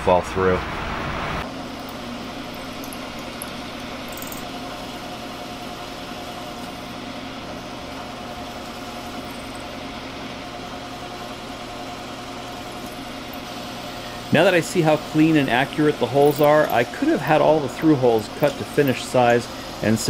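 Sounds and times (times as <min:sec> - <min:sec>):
drill press motor hum: 0:01.4 - 0:20.0
drill bit cutting metal: 0:12.1 - 0:20.0.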